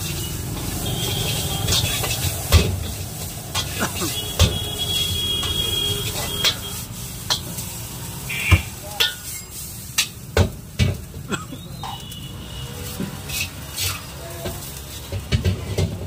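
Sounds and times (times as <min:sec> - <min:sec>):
metal ladle clinking on a wok: 0:09.0 - 0:10.3.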